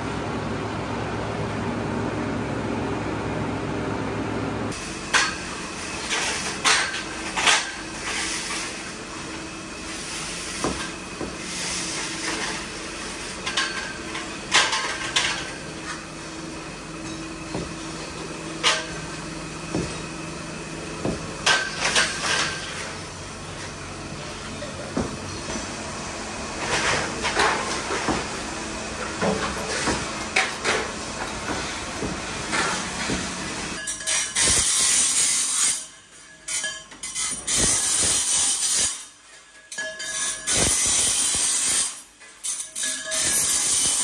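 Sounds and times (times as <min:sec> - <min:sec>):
steady machine hum: 0:00.0 - 0:37.9
metal parts clanking: 0:33.8 - 0:44.0.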